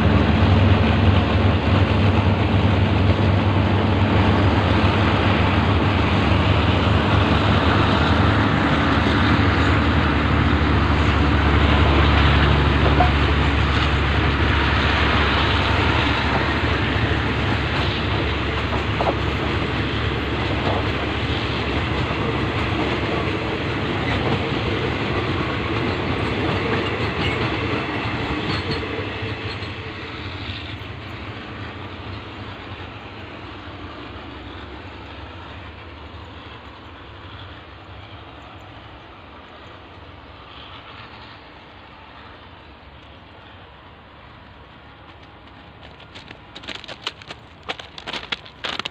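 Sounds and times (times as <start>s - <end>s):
train wheels running over rails: 0.0s - 48.9s.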